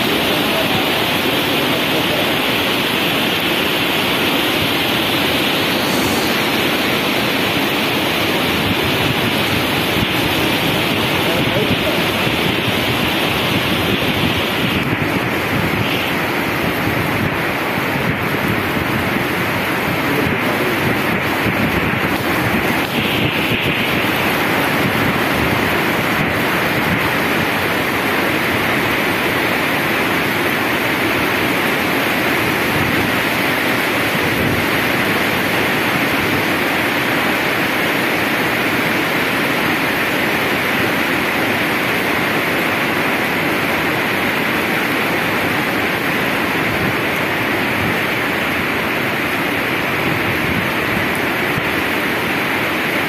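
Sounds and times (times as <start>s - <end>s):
heavy rain on paving: 0.0s - 53.0s.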